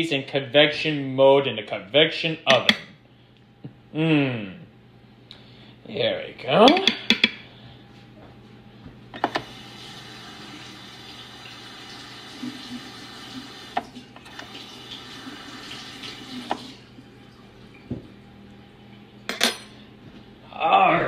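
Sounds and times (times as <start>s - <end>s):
tap running water into sink: 9.3s - 16.9s.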